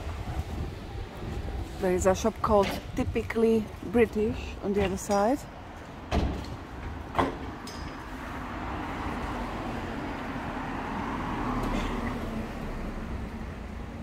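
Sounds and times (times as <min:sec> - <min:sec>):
car driving past: 0:08.2 - 0:13.7.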